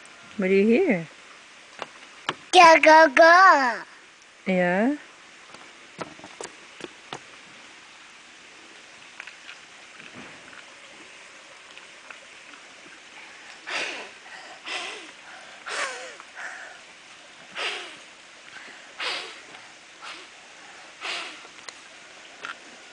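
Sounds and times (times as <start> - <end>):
child blowing through bubble wand: 13.2 - 16.8, 17.5 - 21.6.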